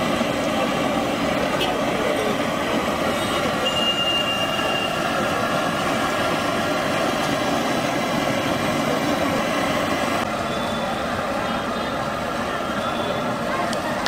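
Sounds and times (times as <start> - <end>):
traffic and engines: 0.0 - 14.0
brief high tone: 3.6 - 5.0, 10.5 - 11.1.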